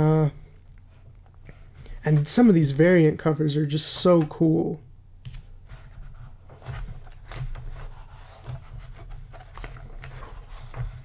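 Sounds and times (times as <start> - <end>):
low steady hum: 0.0 - 11.0
pages turning and rustling: 5.3 - 11.0.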